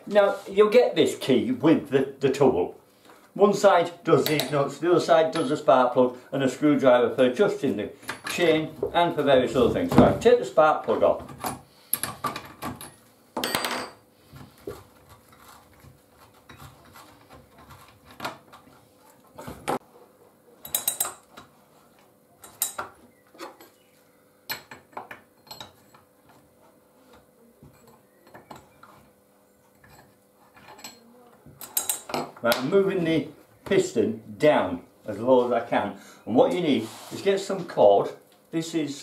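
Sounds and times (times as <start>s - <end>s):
metal tools clinking on wood: 5.2s - 5.7s, 20.6s - 21.4s, 22.4s - 23.8s, 24.5s - 26.4s, 29.8s - 32.4s.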